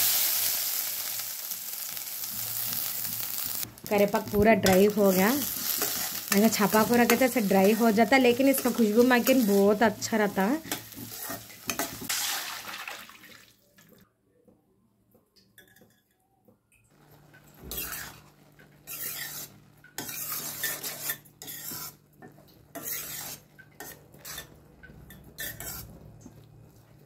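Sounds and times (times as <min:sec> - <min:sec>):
food sizzling: 0:00.0 - 0:13.9, 0:17.5 - 0:24.6
metal utensils clinking on pan: 0:10.4 - 0:12.1.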